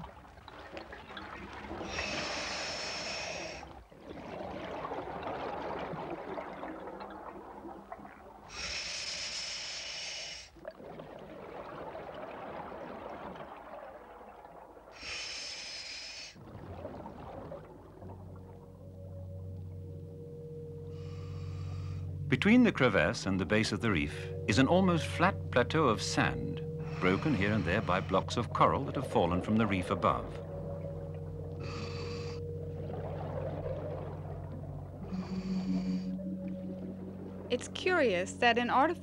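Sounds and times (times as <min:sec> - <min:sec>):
hissing regulator inhalation: 0:01.9 - 0:03.7, 0:08.5 - 0:10.6, 0:26.7 - 0:28.4, 0:30.6 - 0:32.6, 0:35.0 - 0:36.6
bubbling exhalation: 0:26.8 - 0:37.8.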